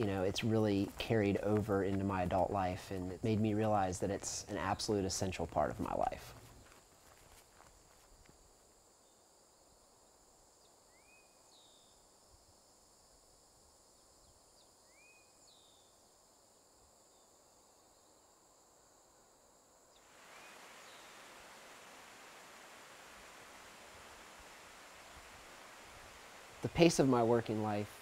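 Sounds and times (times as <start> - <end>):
high insect drone: 0.0 - 28.0
waterfall rushing: 20.0 - 28.0.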